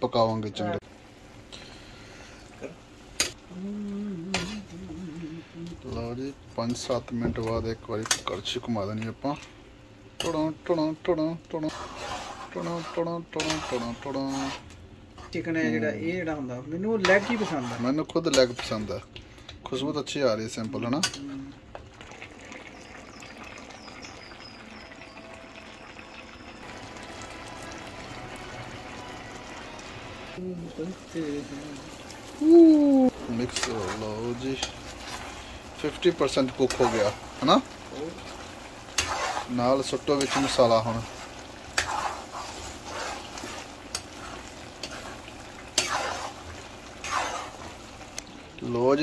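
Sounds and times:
gravy sizzling: 0:00.0 - 0:49.0
curry bubbling: 0:10.3 - 0:14.7, 0:20.5 - 0:49.0
ladle scraping a pan: 0:11.6 - 0:15.4, 0:17.0 - 0:18.8, 0:38.8 - 0:47.8.

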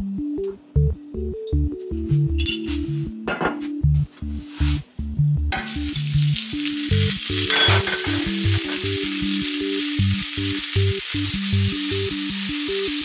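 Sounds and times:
background music with plinking notes: 0:00.0 - 0:13.0
carrots sizzling in hot oil: 0:05.6 - 0:13.0.

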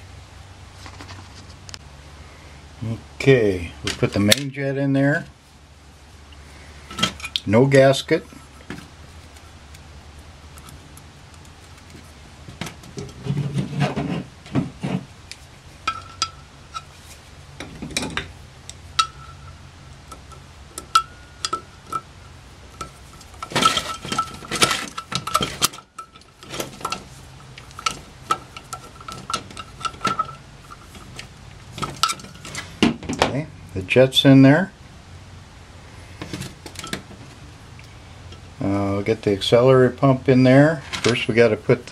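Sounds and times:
metal clatter on workbench: 0:06.9 - 0:07.4, 0:15.8 - 0:16.9, 0:19.0 - 0:19.5, 0:22.8 - 0:33.3, 0:36.2 - 0:37.2
screwdriver clinking on metal: 0:15.9 - 0:16.9, 0:19.0 - 0:22.1, 0:22.8 - 0:32.8.

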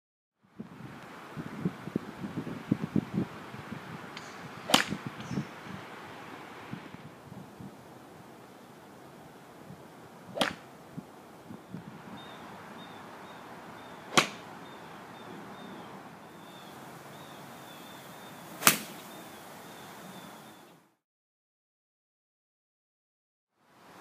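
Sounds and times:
steady outdoor hiss: 0:00.4 - 0:21.0, 0:23.6 - 0:24.0
golf club striking ball: 0:04.1 - 0:05.3, 0:10.3 - 0:10.7, 0:14.0 - 0:14.5, 0:18.6 - 0:19.1.

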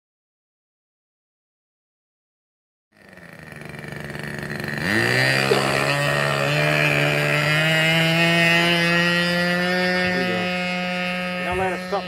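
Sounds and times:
model plane engine whining: 0:03.0 - 0:12.0.

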